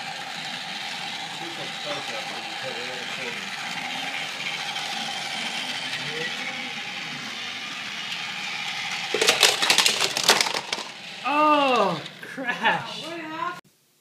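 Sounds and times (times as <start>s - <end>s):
toy train motor hum: 0.0s - 13.6s
plastic pieces clattering on floor: 9.0s - 12.1s.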